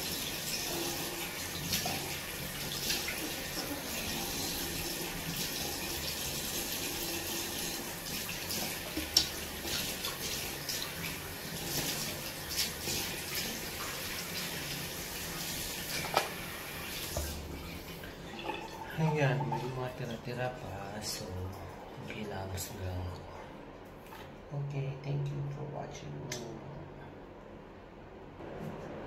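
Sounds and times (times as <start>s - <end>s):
tap water running into a sink: 0.0s - 20.2s.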